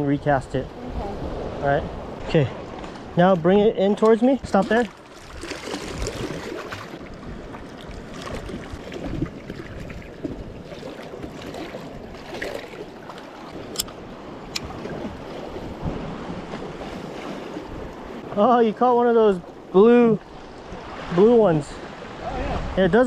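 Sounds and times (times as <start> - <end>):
sea surging against rocks: 4.5 - 23.0
wind buffeting microphone: 5.2 - 12.5, 13.1 - 18.4, 22.0 - 23.0.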